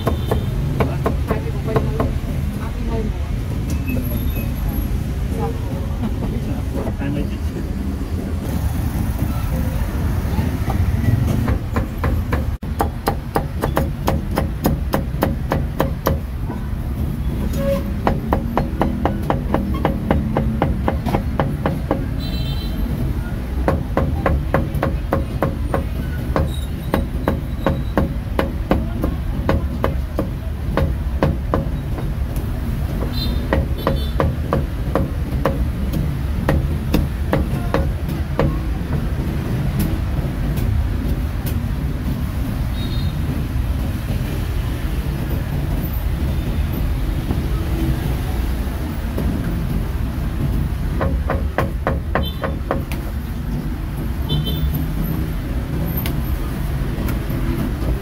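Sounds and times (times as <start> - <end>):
low street rumble: 0.0 - 58.0
cleaver chopping meat: 11.4 - 16.3.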